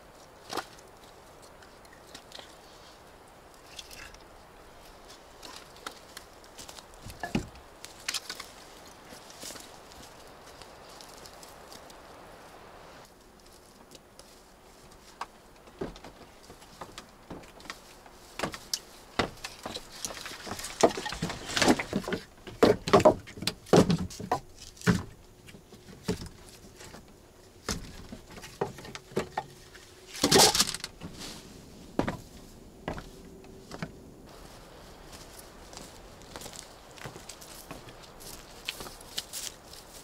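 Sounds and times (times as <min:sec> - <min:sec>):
knocks and thumps of handling: 0:07.0 - 0:07.6, 0:15.2 - 0:31.3.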